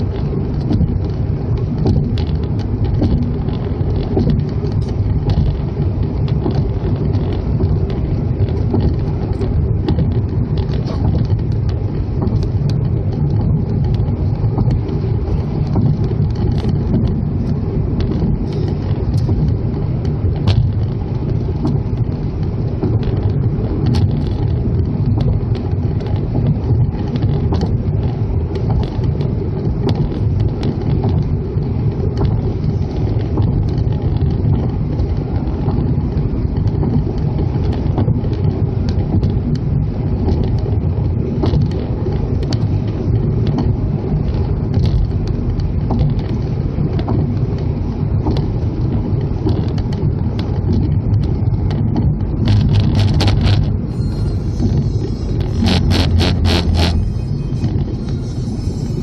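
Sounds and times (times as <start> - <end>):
car tyres and engine rumble: 0.0 - 59.0
rapid evenly spaced clatter: 52.5 - 59.0.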